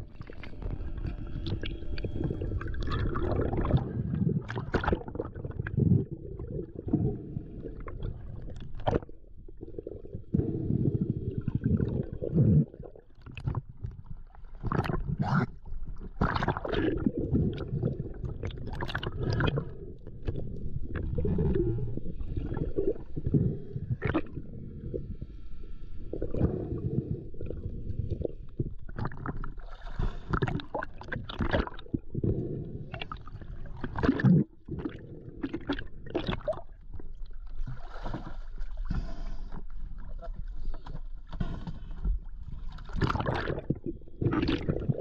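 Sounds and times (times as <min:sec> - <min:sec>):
muffled water gurgling: 0:00.0 - 0:45.0
water splashes: 0:42.4 - 0:45.0.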